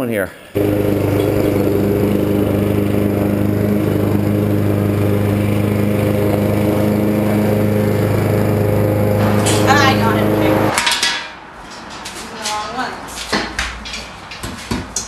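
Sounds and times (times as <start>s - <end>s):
lawn mower engine running: 0.6s - 10.8s.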